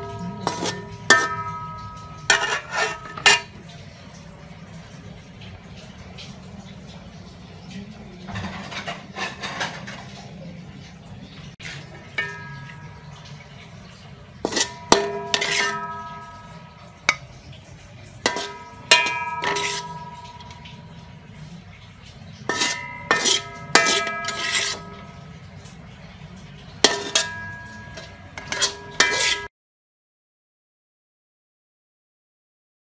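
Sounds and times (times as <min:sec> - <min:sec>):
metal utensil scraping wok: 0:00.0 - 0:04.1, 0:08.3 - 0:10.3, 0:11.6 - 0:29.5
wok ringing: 0:00.0 - 0:04.1, 0:11.6 - 0:29.5.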